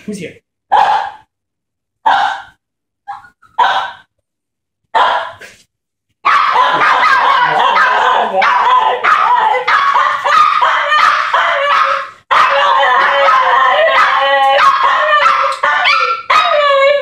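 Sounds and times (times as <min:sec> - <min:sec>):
dog barks: 0:00.7 - 0:01.3, 0:02.0 - 0:04.1, 0:04.9 - 0:05.5, 0:06.2 - 0:16.6
small dog yelping and whining: 0:02.1 - 0:03.9, 0:06.3 - 0:17.0.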